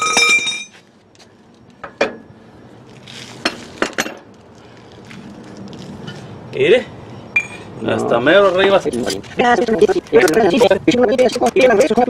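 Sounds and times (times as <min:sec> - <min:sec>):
steel hand tools clinking: 0:00.0 - 0:00.8.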